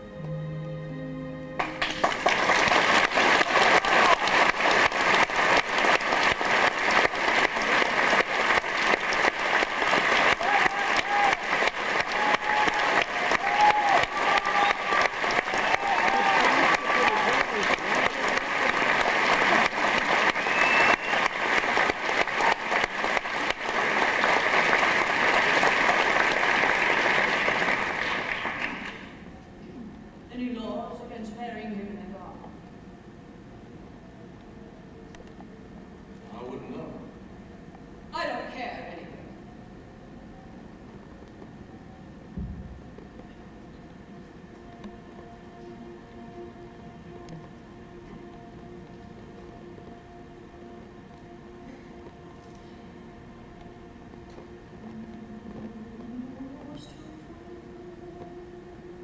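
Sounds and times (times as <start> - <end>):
orchestra sustained notes: 0.0 - 12.1
audience applause: 1.6 - 29.2.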